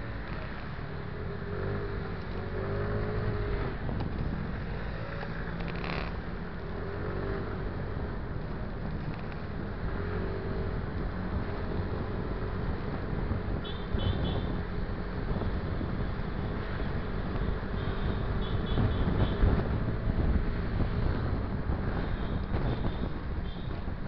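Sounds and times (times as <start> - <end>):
road noise: 0.0 - 24.0
wind noise: 7.3 - 24.0.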